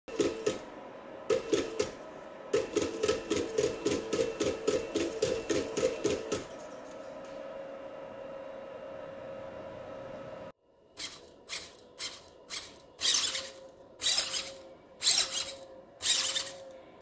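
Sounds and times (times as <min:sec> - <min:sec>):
faint motor hum: 0:00.1 - 0:17.0
servo motors buzzing in pulses: 0:11.0 - 0:16.7.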